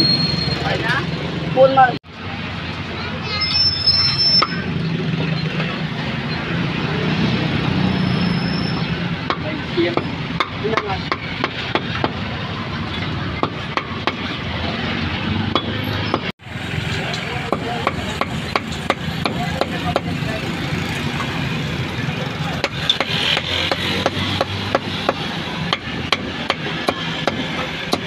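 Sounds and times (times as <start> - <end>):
street noise hum: 0.0 - 28.0
cleaver chopping meat: 22.6 - 28.0.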